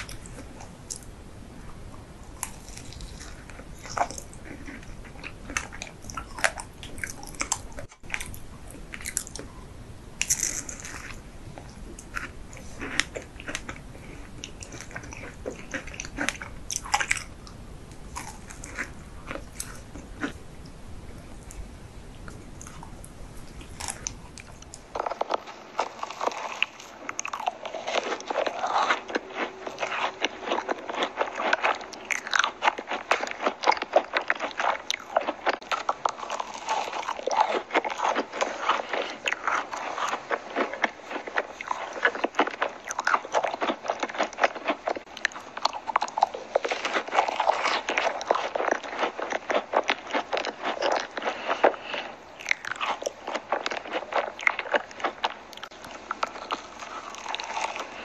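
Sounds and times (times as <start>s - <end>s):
crunching macaron shells: 0.0s - 58.0s
chewing clicks: 10.2s - 20.8s, 22.3s - 58.0s.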